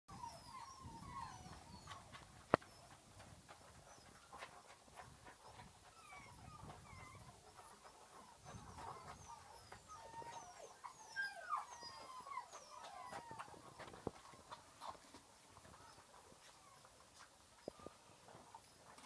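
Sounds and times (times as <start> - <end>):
puppies squeaking: 0.1 - 3.0, 3.8 - 19.0
puppies crunching dry kibble: 12.5 - 19.0.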